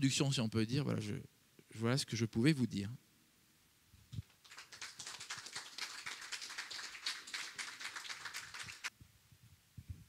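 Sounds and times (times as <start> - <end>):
audience applauding: 4.3 - 8.9.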